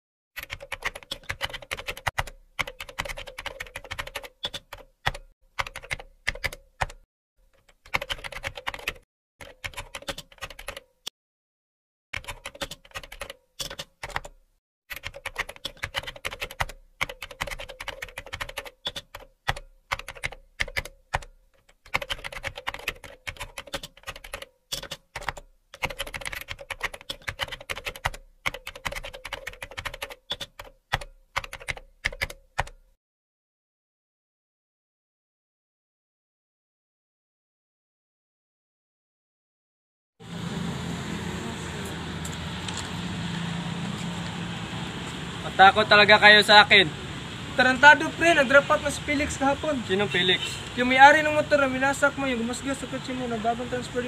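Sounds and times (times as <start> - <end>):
computer keyboard typing: 0.4 - 11.0, 12.2 - 32.9.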